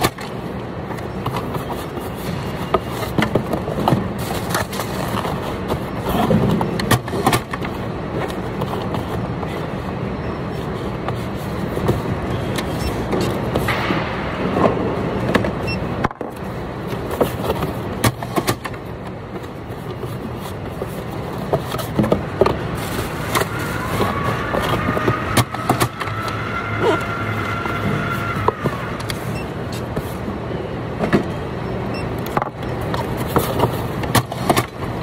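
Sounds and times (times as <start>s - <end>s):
machinery hum: 0.0s - 35.0s
cardboard boxes knocking and scraping: 16.9s - 26.2s, 32.3s - 34.8s.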